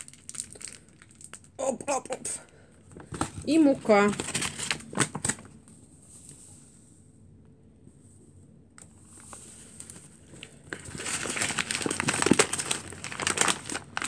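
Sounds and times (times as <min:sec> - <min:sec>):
flour packet crinkling: 0:00.0 - 0:05.6, 0:09.0 - 0:14.0.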